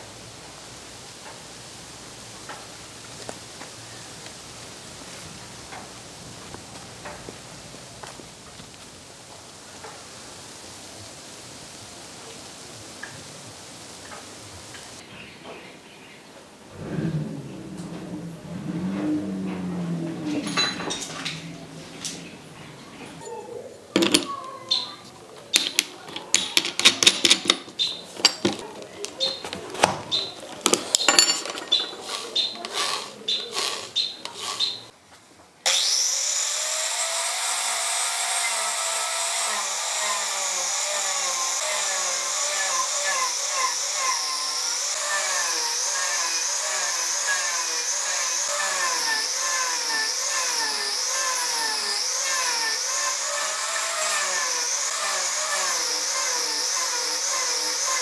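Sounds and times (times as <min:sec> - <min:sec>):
angle grinder carving wood: 0:16.7 - 0:23.3, 0:25.5 - 0:35.0, 0:35.7 - 0:58.0
clicks and knocks of grinder parts: 0:24.0 - 0:24.3, 0:25.5 - 0:34.6.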